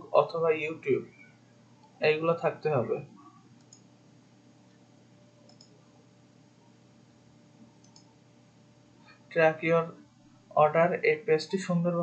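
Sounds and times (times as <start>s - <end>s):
computer mouse clicks: 3.2s - 3.9s, 5.4s - 5.8s, 7.8s - 8.1s.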